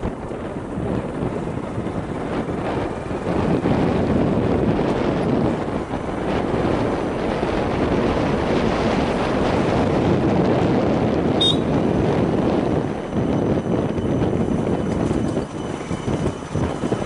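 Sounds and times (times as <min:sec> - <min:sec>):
vehicle running noise: 0:00.0 - 0:17.0
wind rushing over microphone: 0:00.0 - 0:17.0
short high beep: 0:11.4 - 0:11.7.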